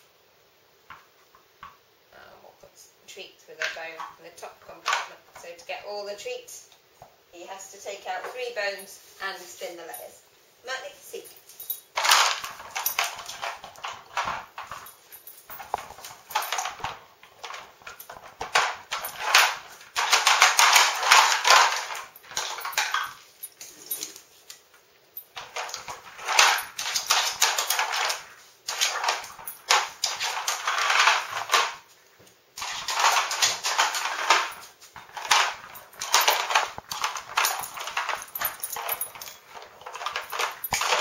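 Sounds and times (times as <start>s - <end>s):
plastic puzzle clattering on tile: 11.6s - 24.6s, 25.2s - 31.9s, 32.6s - 41.0s.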